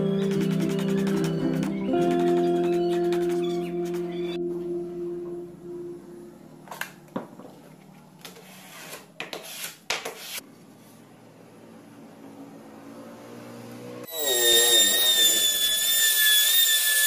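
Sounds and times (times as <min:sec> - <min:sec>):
laminate sheet scraping and rubbing: 0:08.2 - 0:10.4.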